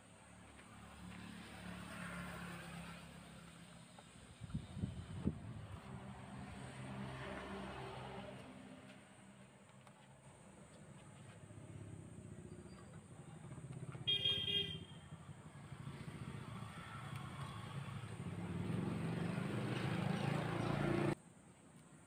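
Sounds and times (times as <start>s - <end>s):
short horn toot: 14.1s - 15.0s.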